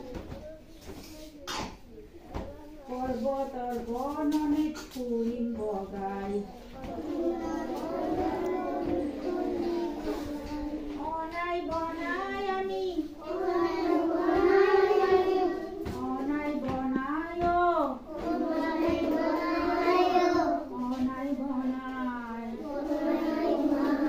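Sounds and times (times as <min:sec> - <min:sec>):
children singing together: 0:05.8 - 0:16.8, 0:17.4 - 0:21.0, 0:22.4 - 0:24.0.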